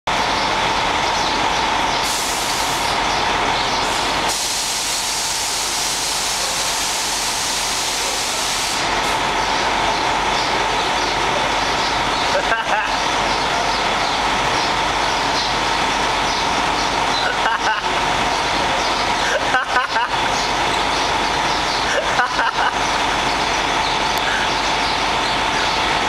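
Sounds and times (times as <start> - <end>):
train hissing: 1.4 - 26.0.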